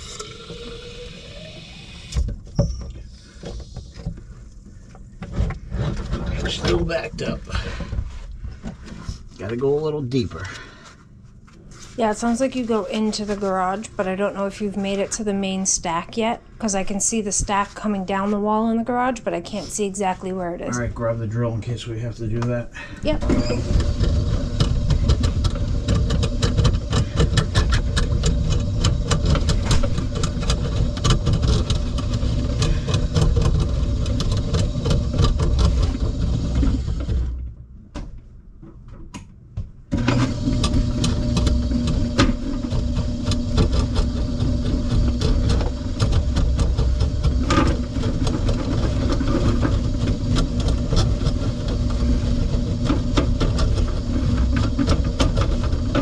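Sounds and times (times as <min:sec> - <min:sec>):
drain-cleaning machine running: 0:00.0 - 0:02.3, 0:05.7 - 0:08.0, 0:23.1 - 0:37.4, 0:39.9 - 0:56.0
cable rattling and clicking: 0:23.3 - 0:37.4, 0:40.0 - 0:56.0.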